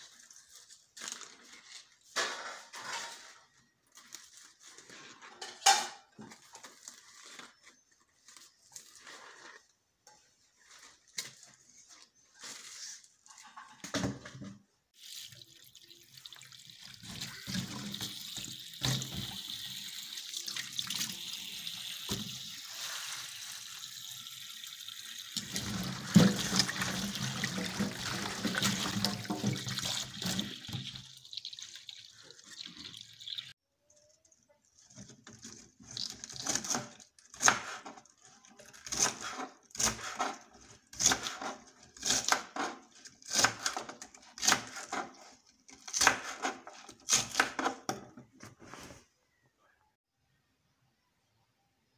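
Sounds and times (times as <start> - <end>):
tap water running into sink: 15.0 - 33.5.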